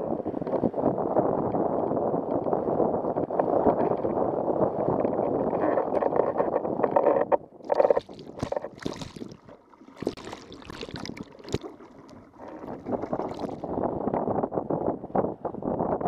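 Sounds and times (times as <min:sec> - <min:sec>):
water splashing and gurgling: 0:07.0 - 0:14.1
wind and water rushing: 0:07.6 - 0:15.1.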